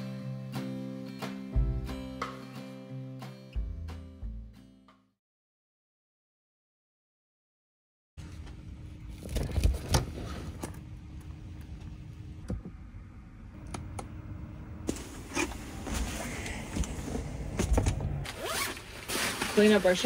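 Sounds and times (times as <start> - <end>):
rustling: 18.2 - 20.0.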